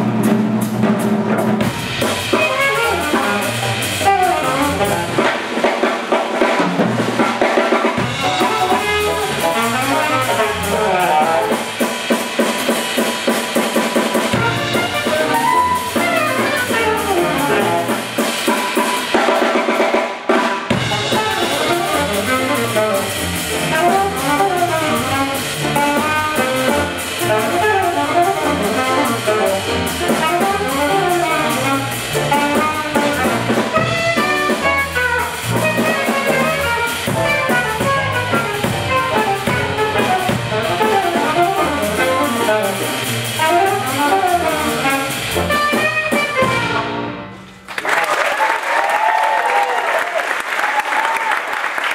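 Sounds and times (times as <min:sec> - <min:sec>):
electric bass: 0:00.0 - 0:05.4, 0:08.0 - 0:11.8, 0:14.3 - 0:18.2, 0:20.8 - 0:47.3
drum kit: 0:00.0 - 0:47.8
saxophone playing fast lines: 0:01.9 - 0:05.4, 0:08.0 - 0:11.8, 0:14.3 - 0:18.5, 0:20.8 - 0:47.3.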